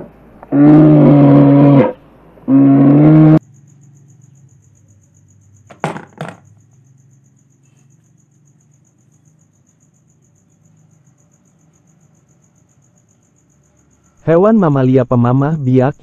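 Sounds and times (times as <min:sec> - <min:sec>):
low animal calls: 0:00.0 - 0:03.4
cricket chirping: 0:00.0 - 0:16.0
toy dropping into plastic basket: 0:05.7 - 0:06.5.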